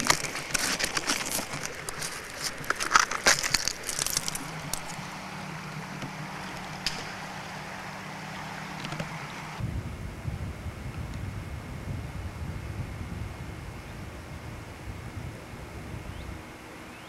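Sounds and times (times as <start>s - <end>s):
fingers scratching crumbling concrete: 0.0s - 5.1s
low hum: 0.0s - 17.0s.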